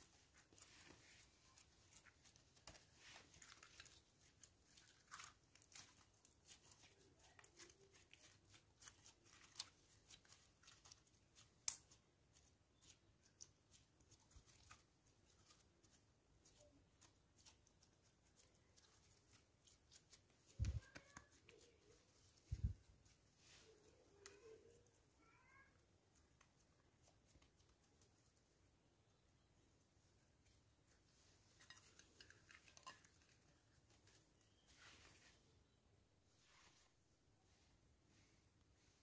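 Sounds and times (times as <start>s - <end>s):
slime clicking and crackling: 0.3s - 21.8s.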